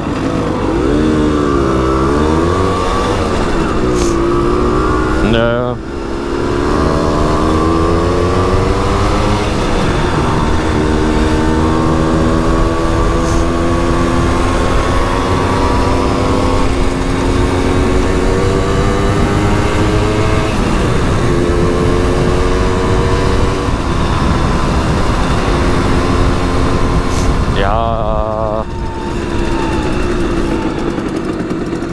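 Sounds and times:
moped engine revving through gears: 0.0s - 31.9s.

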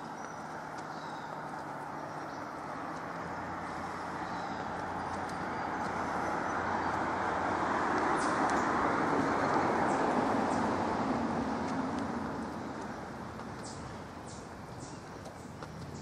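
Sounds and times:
faint high bird chirps: 0.0s - 2.6s
outdoor rushing noise: 0.0s - 16.0s.

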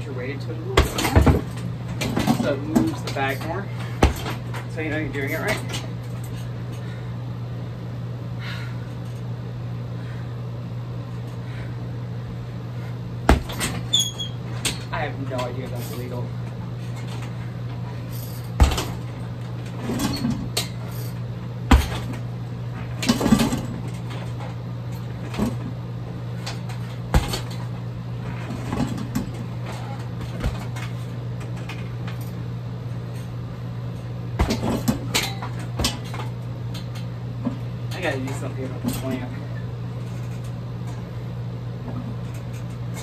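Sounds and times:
low hum: 0.0s - 43.0s
kicks thudding on heavy bag: 0.7s - 4.5s, 13.2s - 14.0s, 18.4s - 20.7s, 21.6s - 24.1s, 26.5s - 27.7s, 28.3s - 30.8s, 34.3s - 36.3s.

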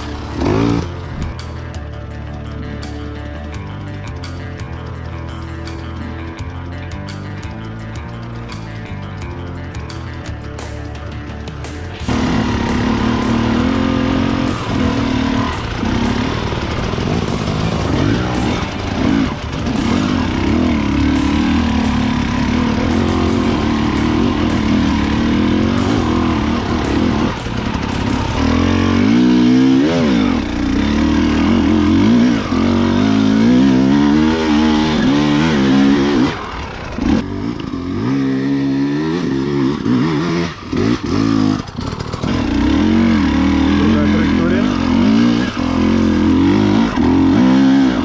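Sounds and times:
two-stroke motorcycle engine revving: 0.0s - 48.0s.

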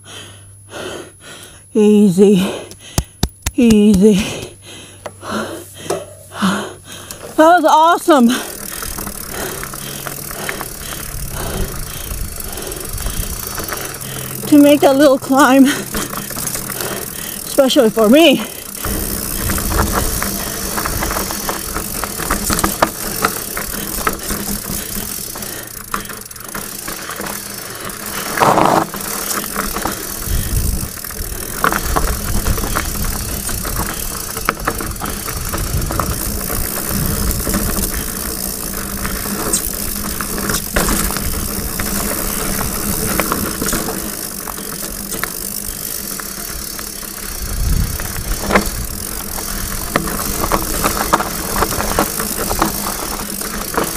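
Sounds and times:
bike chain and frame clatter: 3.0s - 53.9s
tyres crunching on dirt: 7.0s - 53.9s
wind on microphone: 30.2s - 30.9s, 47.4s - 49.0s.

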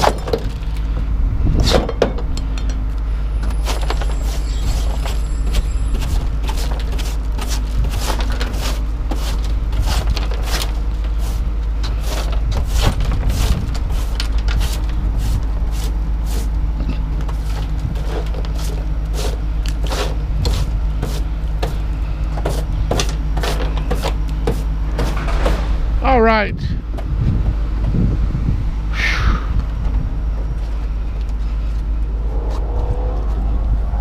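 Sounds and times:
knocks and clatters: 0.0s - 8.7s, 22.4s - 26.0s
vehicle engine running: 0.0s - 34.0s.

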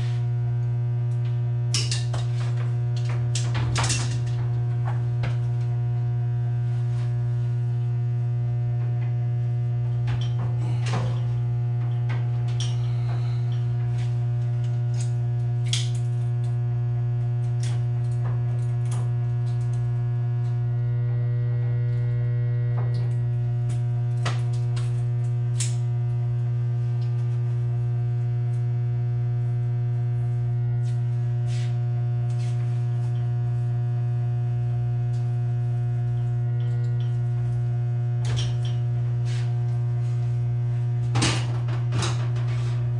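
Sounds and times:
transformer electrical hum: 0.0s - 42.9s
wires clicking and rustling: 1.2s - 5.5s, 9.9s - 16.6s.

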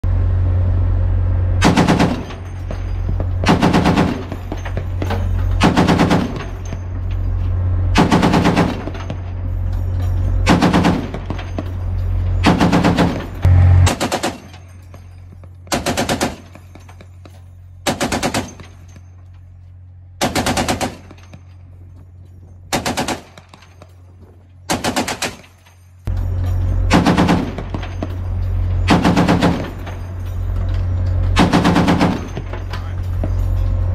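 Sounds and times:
steady low hum: 0.0s - 33.9s
heavy machine gun bursts: 1.6s - 6.7s, 8.0s - 9.1s, 10.4s - 11.6s, 12.4s - 14.8s, 15.7s - 16.8s, 17.8s - 18.9s, 20.2s - 21.4s, 22.7s - 23.7s, 24.7s - 25.6s, 26.8s - 28.2s, 28.8s - 30.2s, 31.2s - 32.9s.

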